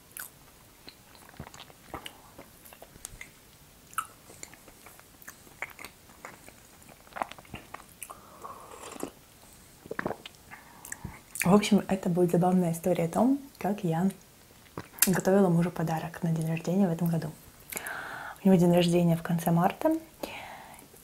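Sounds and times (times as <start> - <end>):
close chewing with mouth clicks: 0.1 - 9.2
person sipping tea: 6.5 - 9.2, 9.8 - 11.2.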